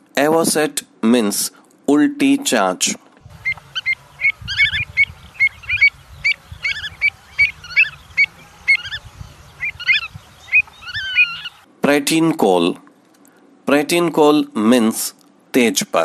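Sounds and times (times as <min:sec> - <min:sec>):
low rumble: 0:03.2 - 0:11.0
bird calling short high notes: 0:03.4 - 0:11.6.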